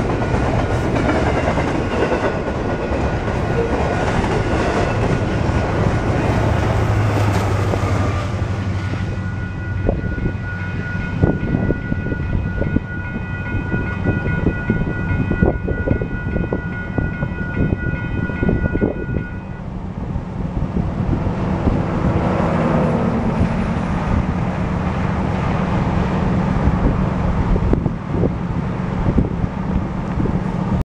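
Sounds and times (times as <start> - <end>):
train rumble: 0.0 - 30.8
wind buffeting microphone: 0.0 - 30.8
distant locomotive horn: 3.3 - 19.8.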